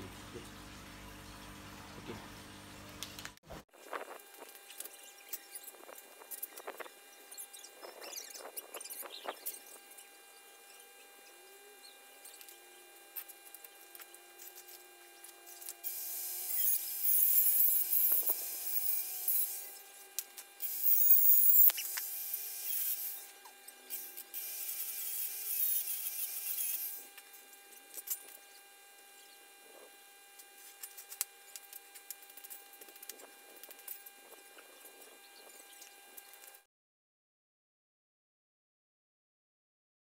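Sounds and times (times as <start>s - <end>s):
angle grinder cutting steel: 4.2s - 29.8s.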